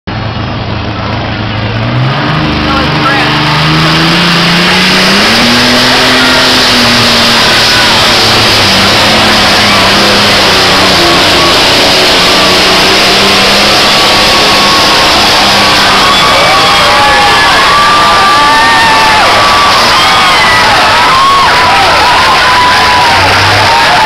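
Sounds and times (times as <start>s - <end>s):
tractor engine running flat out: 0.1s - 24.0s
crowd cheering and whistling: 2.7s - 24.0s.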